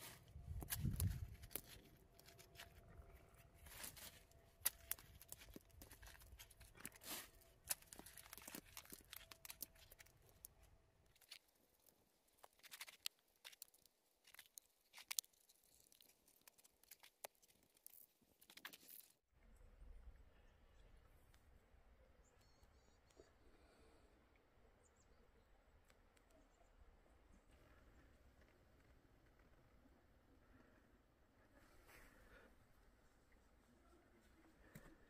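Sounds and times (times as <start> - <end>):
stones scraping and knocking: 0.5 - 10.1.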